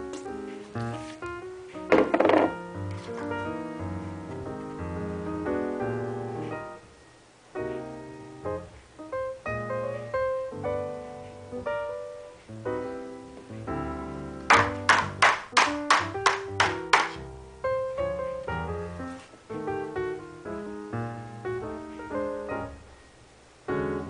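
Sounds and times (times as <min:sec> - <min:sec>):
piano music: 0:00.0 - 0:24.0
sharp taps: 0:14.5 - 0:17.2.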